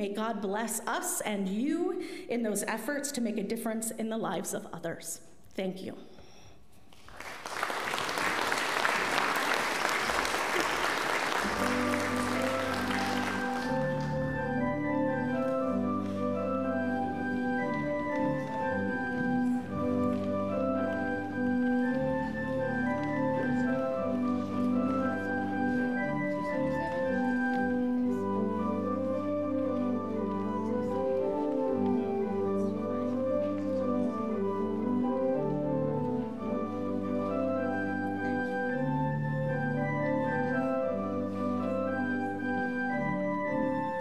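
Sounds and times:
congregation applauding: 0:06.9 - 0:14.6
church organ playing: 0:08.1 - 0:44.0.

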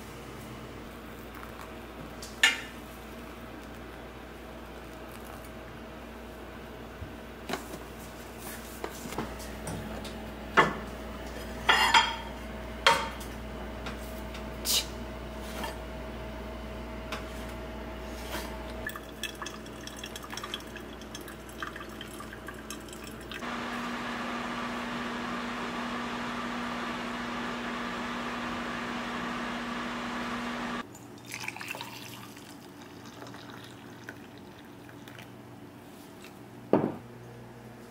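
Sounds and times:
dishes and utensils clinking: 0:11.7 - 0:12.3
liquid pouring and dripping: 0:18.8 - 0:23.4, 0:31.0 - 0:35.3.

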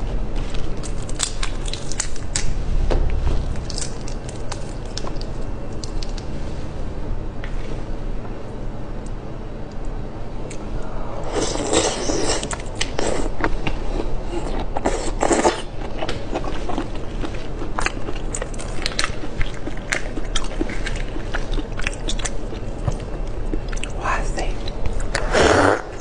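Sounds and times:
chewing: 0:11.3 - 0:24.0.

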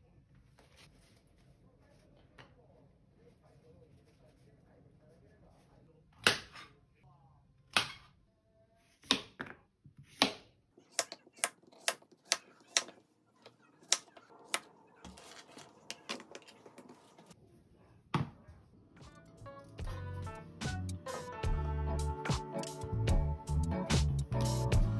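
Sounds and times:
knife cutting on plastic board: 0:10.0 - 0:17.4.

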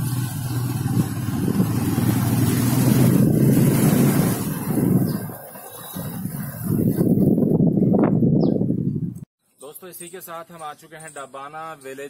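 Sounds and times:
motorcycle engine running: 0:00.0 - 0:05.4
wind rumbling on microphone: 0:00.0 - 0:09.3.

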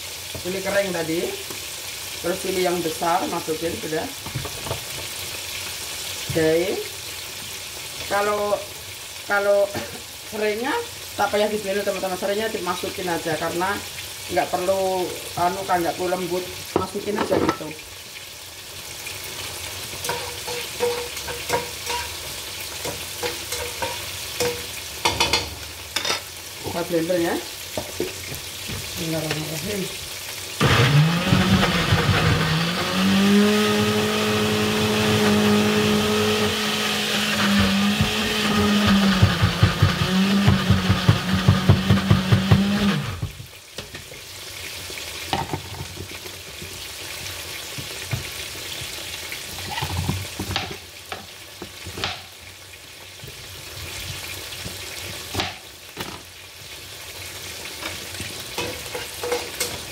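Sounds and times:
chicken sizzling in oil: 0:00.0 - 0:59.9
electric blender grinding: 0:30.6 - 0:43.4.

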